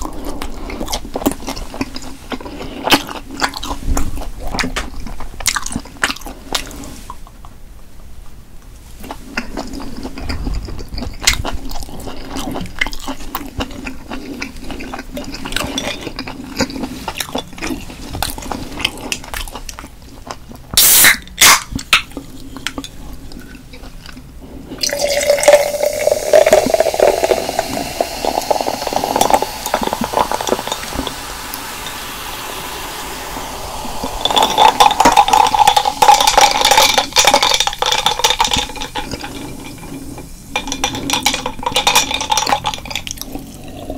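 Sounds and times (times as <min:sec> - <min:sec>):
eating mouth noises: 0:09.0 - 0:31.8, 0:33.6 - 0:43.9
drink pouring into glass: 0:24.8 - 0:43.8.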